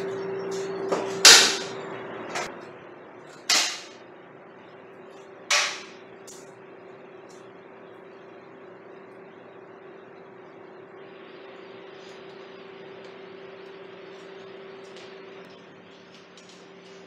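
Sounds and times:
faint steady hum: 0:00.0 - 0:17.0.

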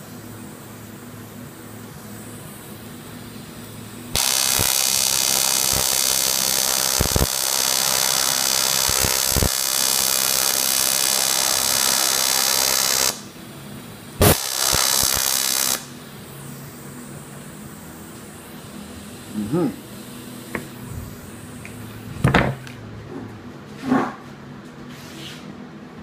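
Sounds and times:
welding arc buzzing hiss: 0:00.0 - 0:22.7
welding arc striking pop: 0:04.1 - 0:13.2, 0:14.2 - 0:15.9.

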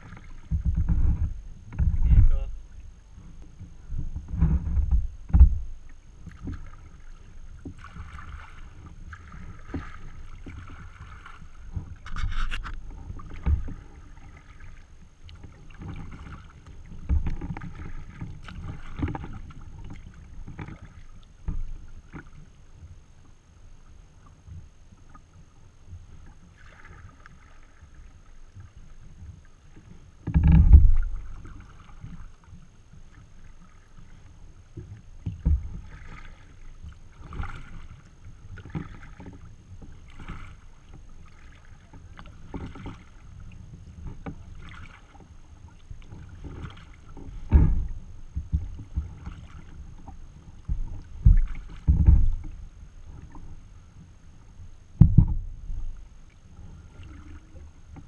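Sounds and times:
wind rumble on microphone: 0:00.0 - 0:14.3, 0:30.2 - 0:32.2, 0:46.2 - 0:53.6, 0:55.0 - 0:56.1
paddle splashes: 0:00.0 - 0:58.0
water lapping: 0:00.0 - 0:58.0.

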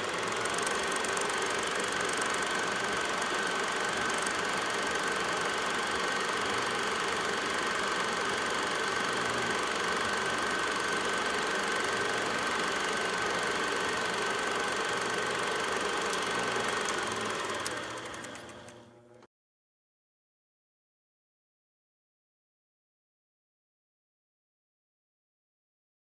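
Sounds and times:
small motor whirring and whining: 0:00.0 - 0:19.3.

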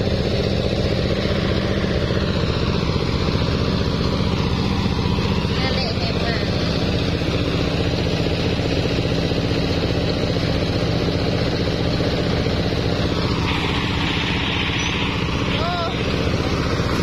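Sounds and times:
diesel engine throbbing: 0:00.0 - 0:17.0
rushing hiss: 0:13.0 - 0:17.0.

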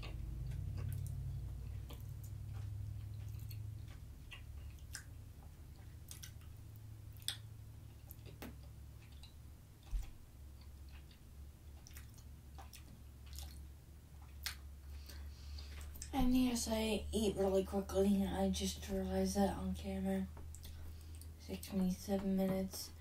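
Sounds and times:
soft chewing: 0:00.0 - 0:16.2, 0:20.2 - 0:21.6
low steady hum: 0:00.0 - 0:23.0.

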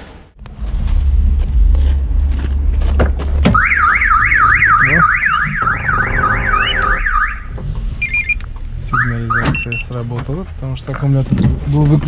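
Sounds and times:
car alarm siren wailing: 0:03.5 - 0:09.8.

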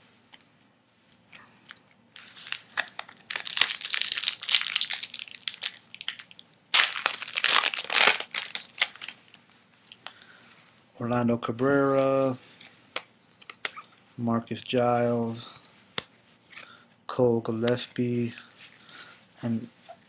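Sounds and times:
foil wrapper crinkling: 0:02.2 - 0:09.4.

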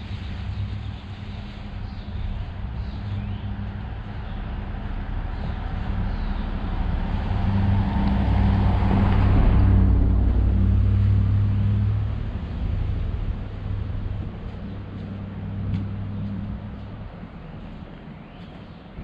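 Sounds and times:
vehicle engine hum: 0:00.0 - 0:19.0.

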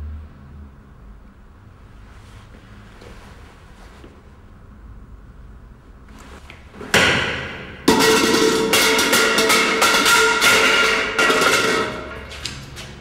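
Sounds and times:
things tumbling down stairs: 0:06.8 - 0:13.0.

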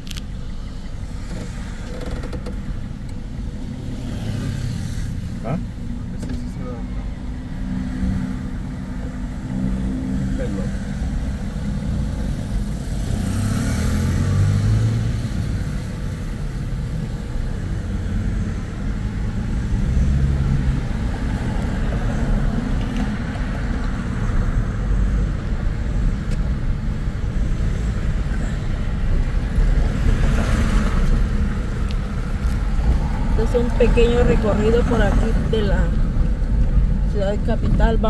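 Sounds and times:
car engine and tyres rumbling: 0:00.0 - 0:38.0.

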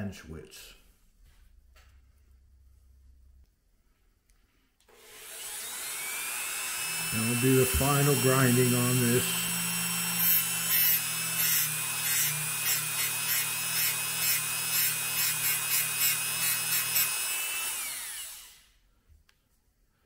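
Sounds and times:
rotary tool whine winding down: 0:04.9 - 0:18.8
rotary tool grinding metal: 0:05.0 - 0:18.6.

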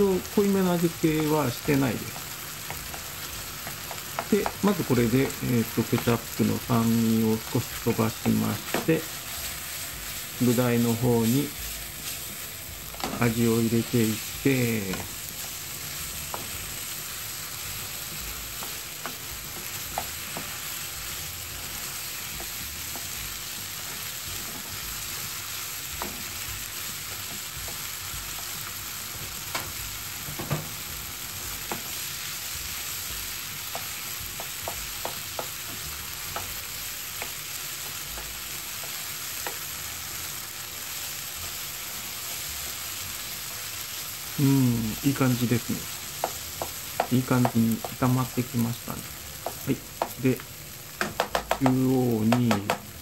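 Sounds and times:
food sizzling in a frying pan: 0:00.0 - 0:53.0
spatula clicking against pan: 0:33.7 - 0:39.6.

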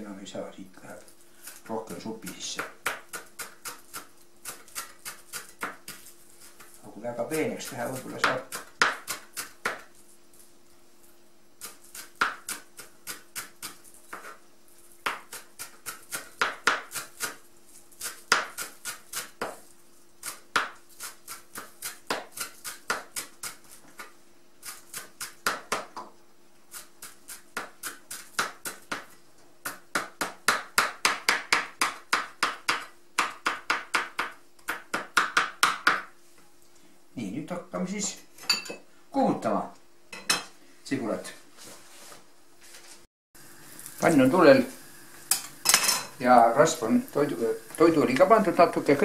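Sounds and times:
faint steady hum: 0:00.0 - 0:49.0
knife chopping on plastic board: 0:15.0 - 0:17.4, 0:20.2 - 0:24.1, 0:27.5 - 0:36.1.

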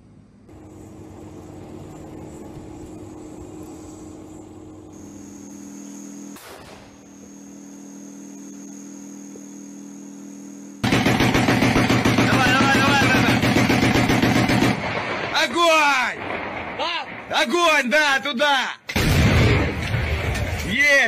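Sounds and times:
tank engine droning: 0:00.0 - 0:15.2.

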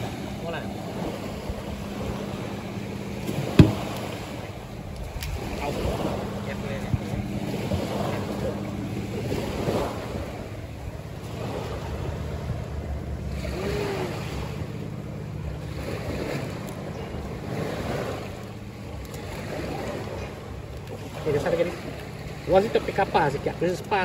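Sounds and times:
wind buffeting microphone: 0:00.0 - 0:21.1
surf washing on beach: 0:00.0 - 0:24.0.

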